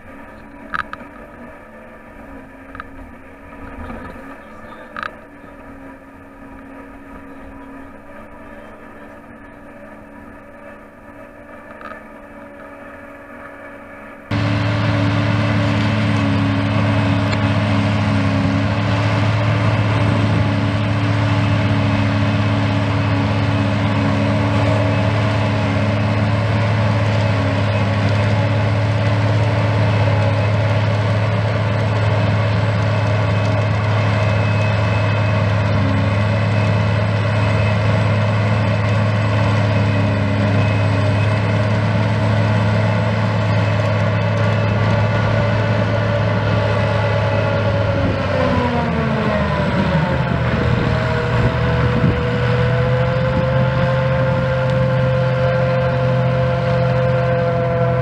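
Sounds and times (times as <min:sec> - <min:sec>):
forage harvester chopping grass: 0:14.3 - 0:58.0.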